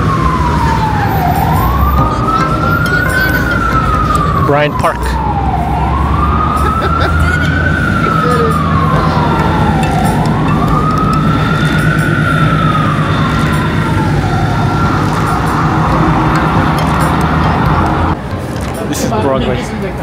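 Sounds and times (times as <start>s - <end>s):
emergency vehicle siren wailing: 0.0s - 18.2s
city traffic noise: 0.0s - 20.0s.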